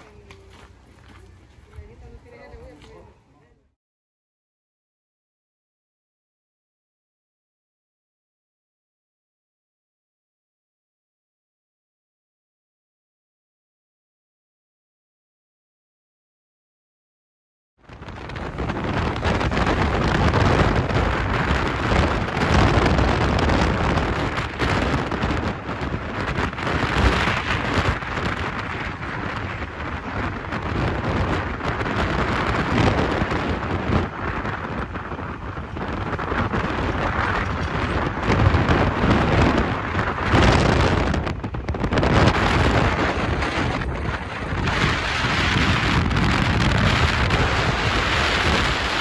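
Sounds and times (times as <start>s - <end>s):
vehicle rumble: 0.0s - 3.7s, 18.0s - 49.0s
wind rushing over microphone: 17.8s - 49.0s.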